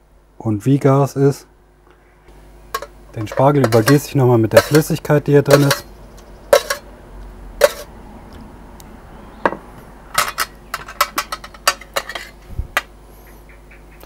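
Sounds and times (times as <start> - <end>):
metal spoon clinking on tray: 2.8 - 5.9, 6.5 - 6.8, 7.6 - 7.9, 10.2 - 12.4.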